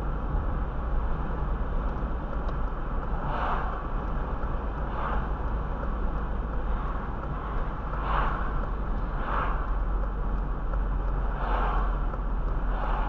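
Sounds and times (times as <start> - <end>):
road and tyre noise inside car: 0.0 - 13.0
passing cars whooshing: 6.7 - 10.0, 11.1 - 13.0.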